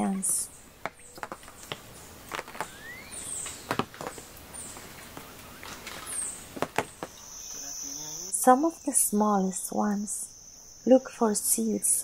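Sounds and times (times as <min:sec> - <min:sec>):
rustles in dry leaves: 0:00.5 - 0:07.5
faint high chirps: 0:04.5 - 0:12.0.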